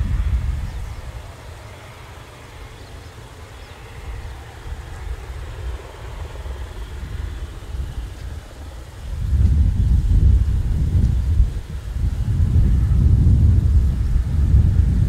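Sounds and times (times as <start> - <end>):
faint engine noise hiss: 0.0 - 15.0
wind buffeting microphone: 0.0 - 15.0.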